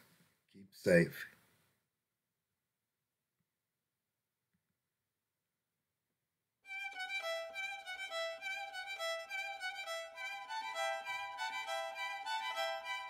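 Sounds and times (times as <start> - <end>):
bowed instrumental melody: 6.7 - 13.0.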